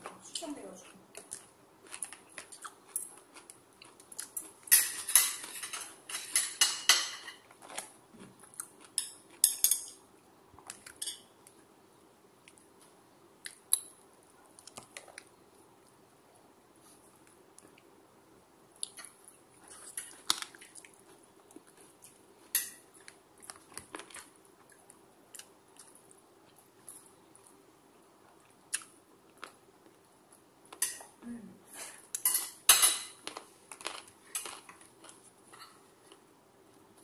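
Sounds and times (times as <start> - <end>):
quiet chewing: 0.0 - 6.0, 7.5 - 9.6, 18.8 - 30.8, 33.2 - 37.0
utensils clinking on ceramic plate: 4.7 - 7.4, 32.2 - 33.2.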